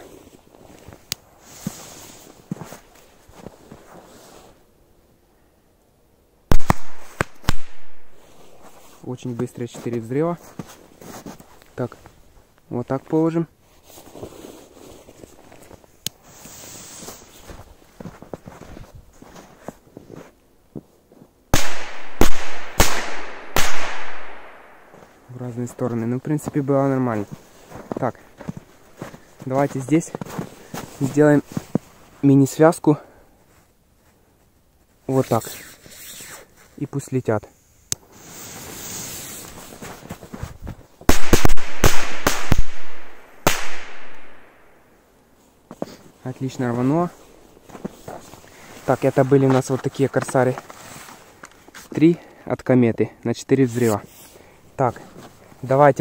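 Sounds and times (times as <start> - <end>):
firecracker bangs: 6.5 - 8.2, 21.6 - 24.9, 41.1 - 44.5
firecracker fuses hissing: 16.2 - 17.4, 35.4 - 36.7, 38.0 - 39.6
bang echo: 21.6 - 25.0.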